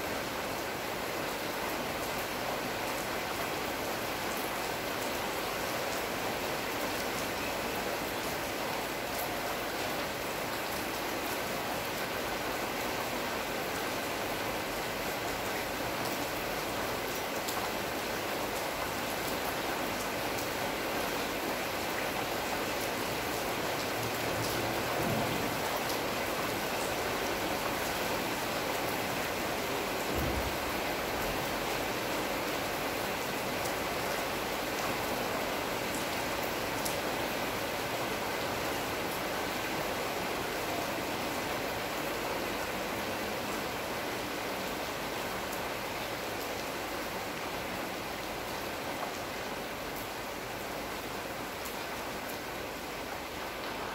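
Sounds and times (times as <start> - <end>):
rain falling on foliage: 0.0 - 53.9.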